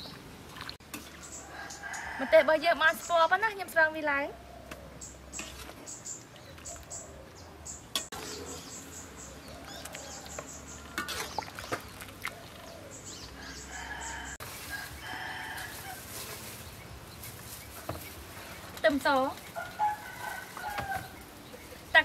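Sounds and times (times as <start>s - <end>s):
rooster crowing: 13.4s - 16.0s, 19.6s - 21.2s.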